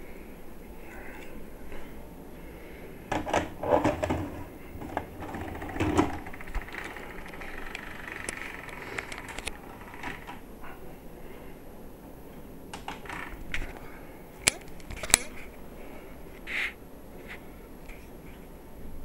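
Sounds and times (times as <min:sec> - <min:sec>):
soft steady hiss: 0:00.0 - 0:19.0
vcr mechanism clicks: 0:03.1 - 0:10.4, 0:12.7 - 0:13.7.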